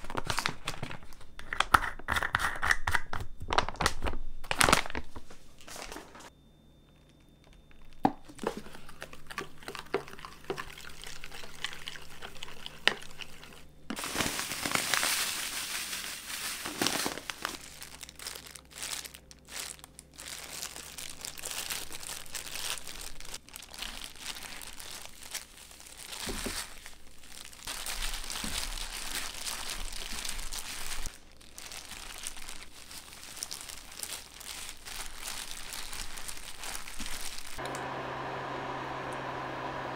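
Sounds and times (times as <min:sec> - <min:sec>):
plastic crinkling: 0:00.0 - 0:02.0, 0:03.5 - 0:06.3, 0:06.9 - 0:37.6
breadcrumbs rustling: 0:08.3 - 0:37.6.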